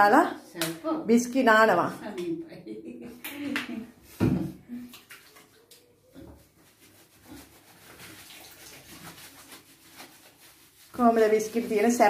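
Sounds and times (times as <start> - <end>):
water splashing in bathtub: 3.2 - 12.0.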